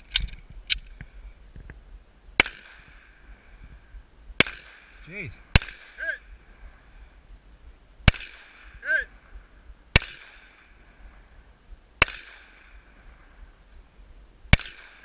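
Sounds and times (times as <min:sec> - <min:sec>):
pistol shots with echo: 0:04.4 - 0:06.0, 0:10.0 - 0:10.6, 0:14.5 - 0:15.0.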